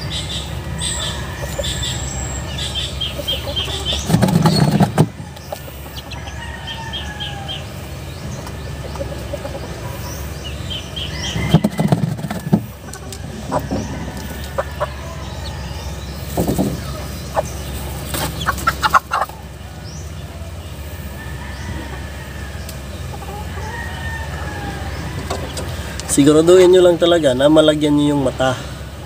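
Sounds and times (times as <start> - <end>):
chicken clucking: 0.0 - 28.5
small birds chirping: 0.0 - 29.0
chicken flapping wings: 4.0 - 5.1.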